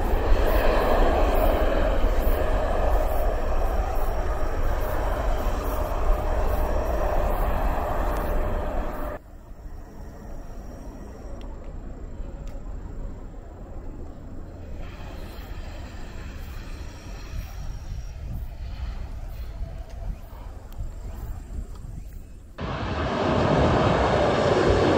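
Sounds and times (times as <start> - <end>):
jet engine roar: 0.0 - 9.2, 22.6 - 24.9
distant airport background: 0.0 - 24.9.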